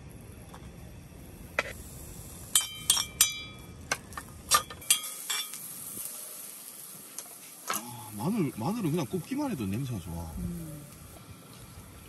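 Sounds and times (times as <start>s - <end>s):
metal cookware clinking: 2.5s - 3.6s, 4.5s - 5.6s.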